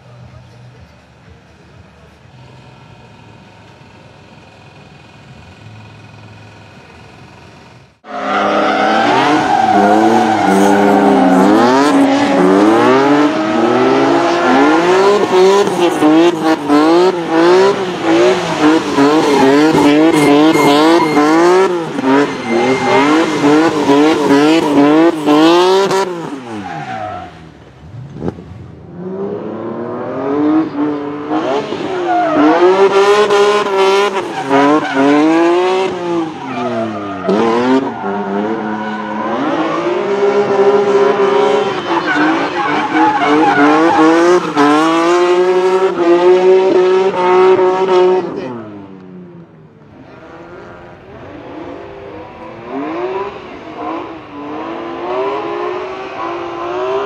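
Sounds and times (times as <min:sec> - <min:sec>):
car engine revving hard: 0:08.0 - 0:48.6, 0:50.0 - 0:57.0
tyres squealing: 0:08.2 - 0:16.1, 0:17.9 - 0:25.5.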